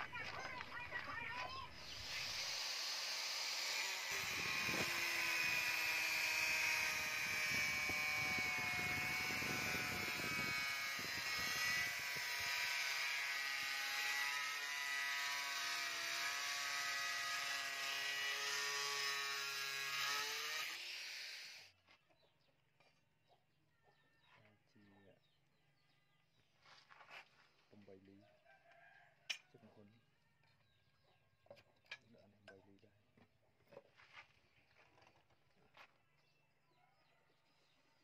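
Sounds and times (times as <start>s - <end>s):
angle grinder grinding steel: 1.8s - 21.7s.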